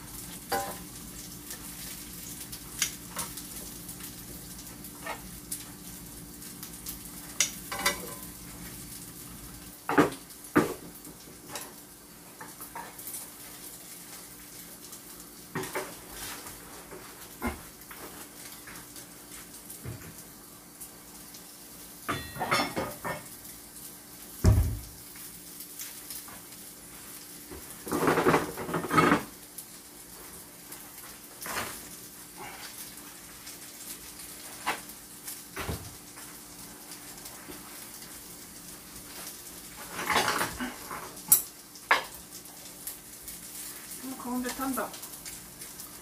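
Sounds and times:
frying pan and utensils handled: 0:00.5 - 0:00.8, 0:07.7 - 0:08.3, 0:22.1 - 0:23.3, 0:27.9 - 0:29.3, 0:39.8 - 0:42.1
dishes clinking: 0:22.1 - 0:23.2.

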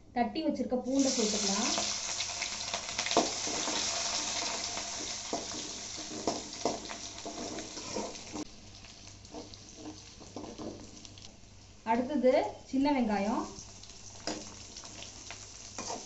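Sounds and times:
garlic sizzling in hot oil: 0:00.9 - 0:16.0
spatula scraping metal pan: 0:03.4 - 0:08.4, 0:15.8 - 0:16.0.

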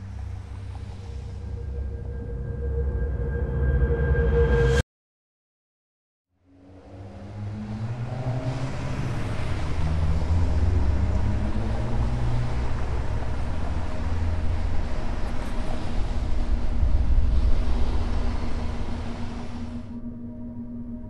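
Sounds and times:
drifting hum: 0:06.7 - 0:21.0.

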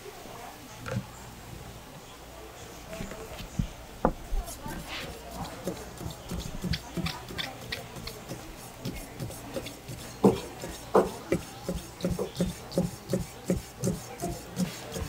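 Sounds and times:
knife chopping on wooden board: 0:04.4 - 0:15.0.

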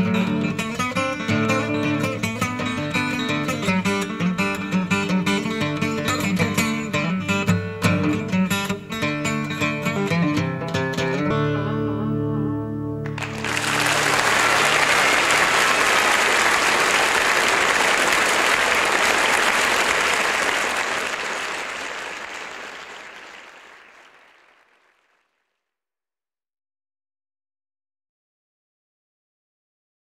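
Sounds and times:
electric guitar notes and chord: 0:11.1 - 0:13.9
audience applause: 0:13.1 - 0:25.3.

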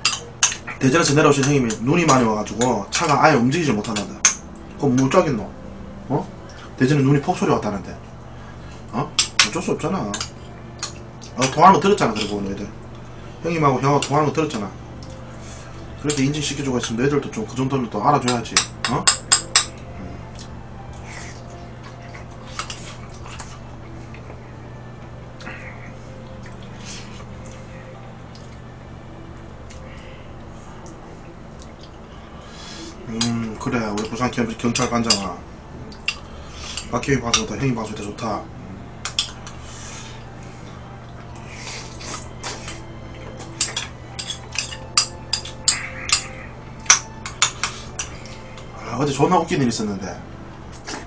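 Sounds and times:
steady low hum: 0:00.0 - 0:51.0
wet eating sounds: 0:18.8 - 0:24.4, 0:25.3 - 0:28.7, 0:29.6 - 0:34.1, 0:35.8 - 0:36.9, 0:39.0 - 0:48.8, 0:50.7 - 0:51.0
metal spoon clinking porcelain bowl: 0:43.6 - 0:48.1.

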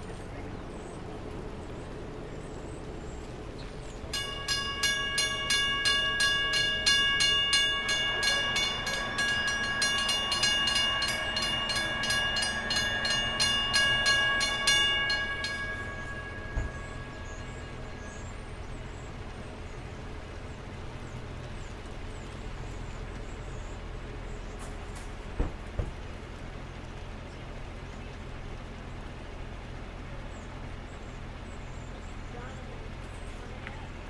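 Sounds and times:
mechanical crossing bells clanging: 0:04.1 - 0:19.7.

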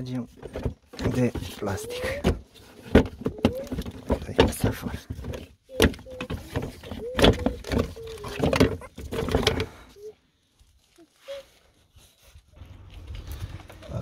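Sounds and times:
plastic squeaking: 0:00.0 - 0:14.0
plastic knocks and clicks: 0:00.4 - 0:09.7.

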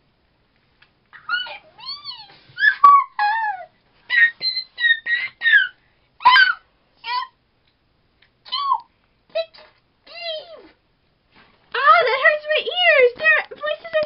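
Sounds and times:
girl imitating cat meows: 0:01.2 - 0:02.9, 0:08.5 - 0:10.8.

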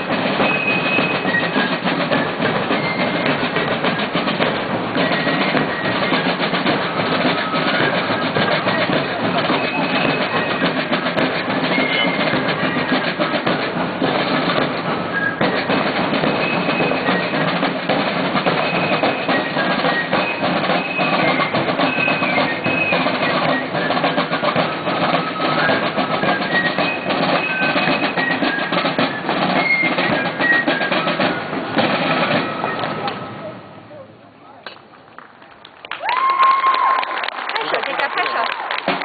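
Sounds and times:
parade drums marching beat: 0:00.0 - 0:33.9, 0:36.1 - 0:39.0.

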